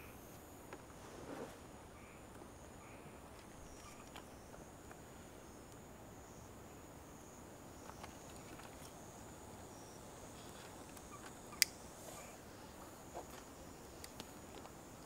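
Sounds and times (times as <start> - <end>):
insects buzzing: 0.0 - 15.0
faint ticks: 12.8 - 15.0.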